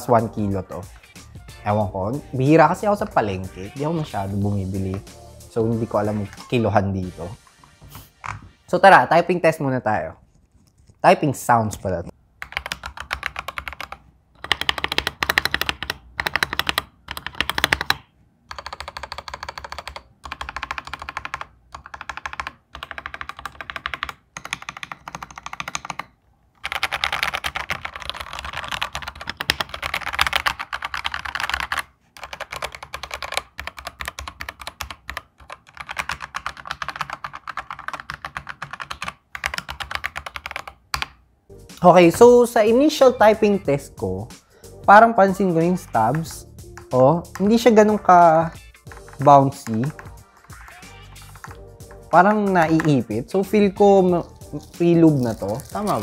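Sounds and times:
mechanical keyboard typing: 0:12.4 - 0:41.2, 0:45.2 - 0:56.0.

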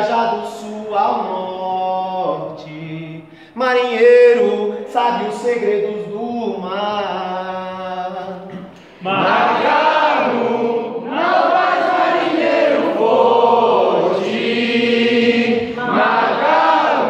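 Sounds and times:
group singing chorus unaccompanied: 0:08.5 - 0:17.0.

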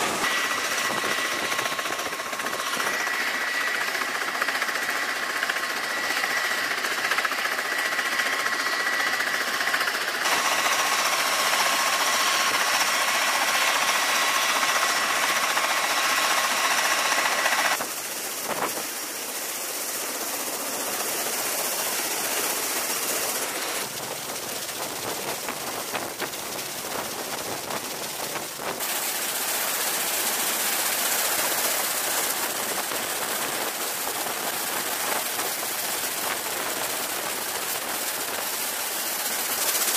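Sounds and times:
high engine whine: 0:00.0 - 0:30.8
aircraft engines rushing: 0:00.0 - 0:39.0.

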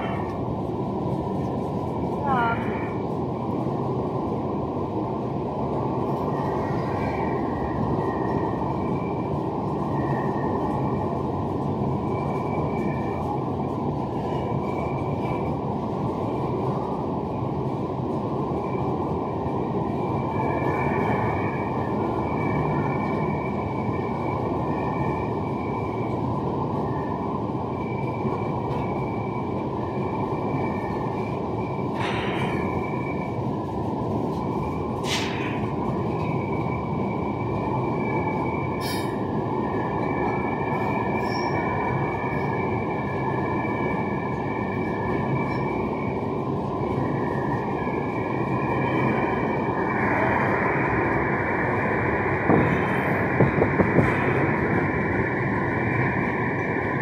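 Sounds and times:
train wheels rumbling on rail: 0:00.0 - 0:57.0
faint high squeals: 0:35.0 - 0:46.2.

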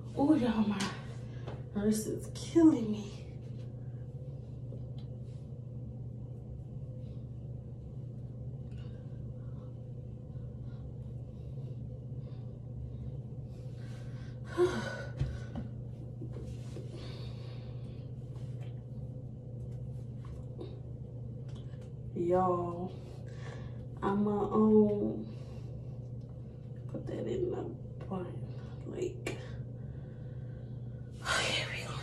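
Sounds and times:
low hum: 0:00.0 - 0:32.0.

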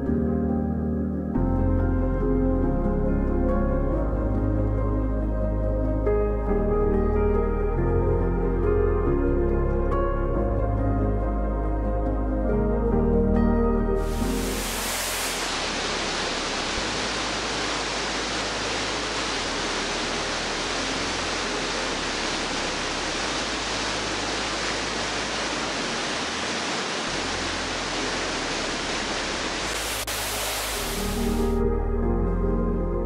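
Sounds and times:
music: 0:00.0 - 0:16.8, 0:29.7 - 0:33.0
waterfall rushing over rock: 0:14.0 - 0:31.6.

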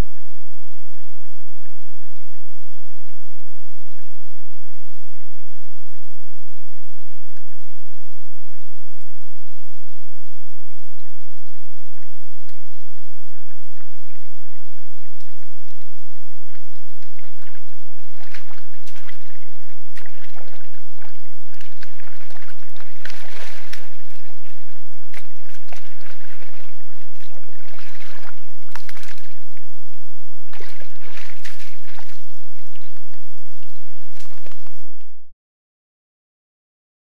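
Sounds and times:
low hum: 0:00.0 - 0:35.3
boars splashing in mud: 0:13.4 - 0:29.7, 0:30.5 - 0:35.0.

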